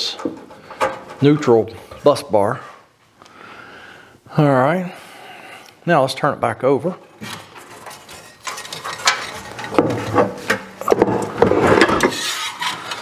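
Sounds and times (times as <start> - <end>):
metal furnace scraping and clunking: 7.2 - 13.0.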